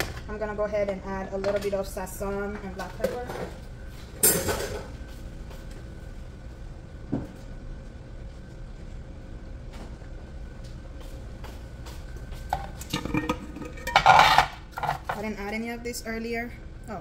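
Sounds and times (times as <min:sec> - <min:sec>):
low kitchen hum: 0:00.0 - 0:17.0
kitchen containers and utensils clicking: 0:12.8 - 0:15.2.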